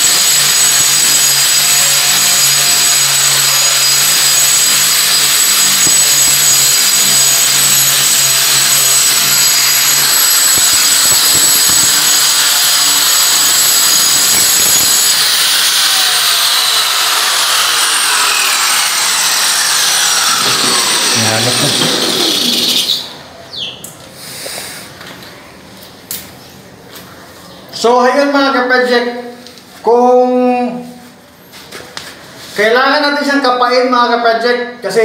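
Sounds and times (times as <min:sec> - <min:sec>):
angle grinder grinding wall: 0:00.0 - 0:23.2.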